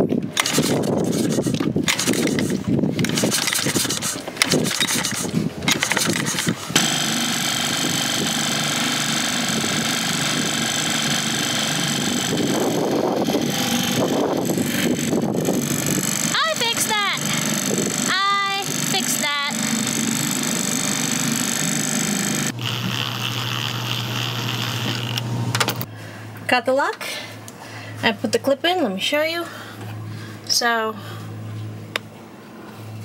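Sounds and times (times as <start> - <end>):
outboard motor running: 0.4 - 25.9.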